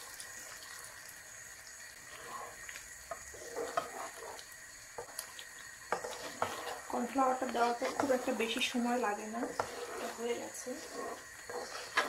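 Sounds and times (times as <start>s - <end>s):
light sizzling: 0.0s - 12.0s
slurry pouring into pan: 0.0s - 12.0s
spatula knocking and scraping pan: 2.2s - 5.2s, 5.9s - 12.0s.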